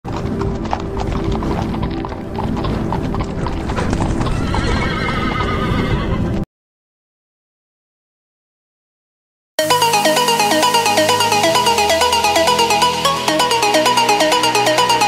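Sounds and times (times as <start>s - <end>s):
background music: 0.1s - 5.4s, 9.6s - 15.0s
galloping hoofbeats: 0.1s - 6.0s
horse whinnying: 3.5s - 6.4s.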